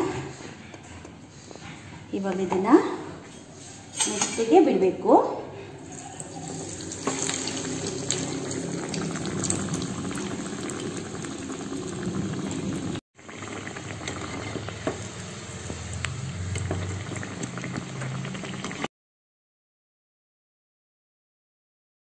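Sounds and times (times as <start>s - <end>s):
food deep-frying in hot oil: 5.8s - 18.9s.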